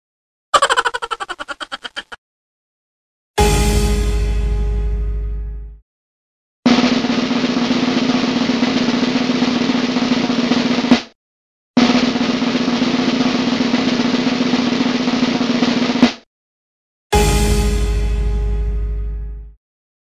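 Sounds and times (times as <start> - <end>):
snare drum roll: 6.7 - 11.2, 11.8 - 16.2.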